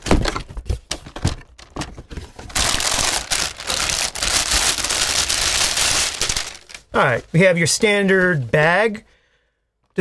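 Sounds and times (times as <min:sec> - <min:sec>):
plastic bag crinkling: 0:02.3 - 0:07.0.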